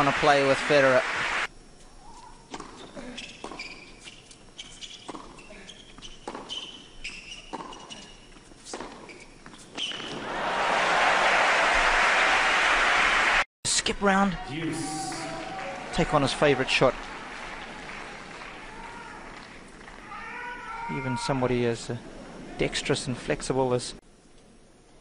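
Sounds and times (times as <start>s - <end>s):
applause: 0.0s - 1.5s, 10.2s - 13.5s, 14.7s - 20.2s
crowd noise: 0.0s - 1.5s, 10.0s - 13.4s, 14.4s - 22.7s
tennis ball bouncing on court: 5.0s - 5.4s, 6.2s - 6.8s, 7.4s - 8.0s.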